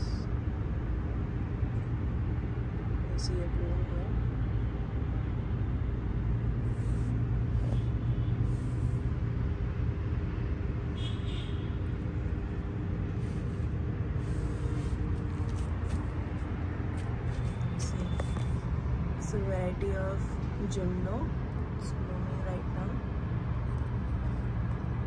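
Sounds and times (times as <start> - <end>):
faint hum: 0.0 - 25.0
low background rumble: 0.0 - 25.0.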